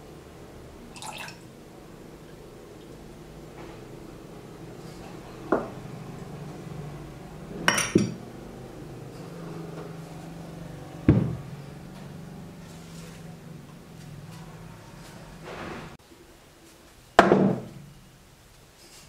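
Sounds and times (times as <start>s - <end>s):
glass clinking: 7.7s - 8.2s
items knocking on table: 11.1s - 11.4s, 17.2s - 17.7s.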